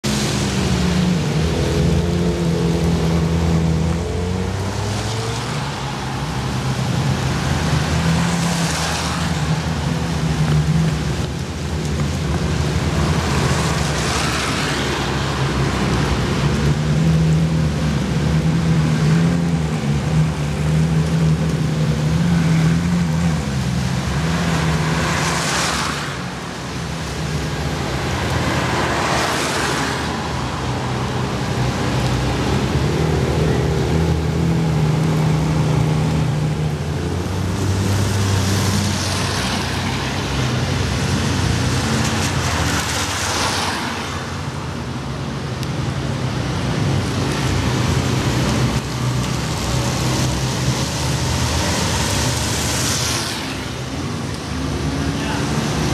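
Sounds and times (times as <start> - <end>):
tyres hissing on wet road: 0.0 - 55.9.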